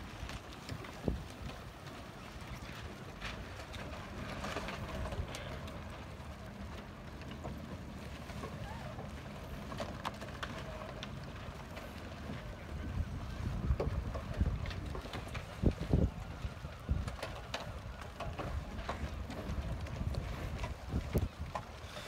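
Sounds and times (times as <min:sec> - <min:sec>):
wind buffeting microphone: 0:00.0 - 0:02.0, 0:11.3 - 0:22.0.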